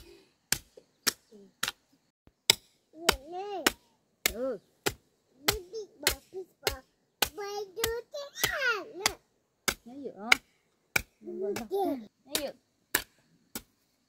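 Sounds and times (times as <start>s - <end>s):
child's high-pitched vocal sounds: 3.0s - 3.9s, 5.5s - 9.2s.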